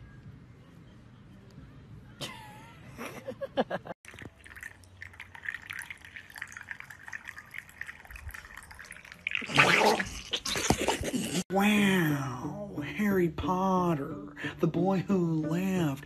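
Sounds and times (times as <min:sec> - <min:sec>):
dog lapping liquid: 0:04.0 - 0:11.1.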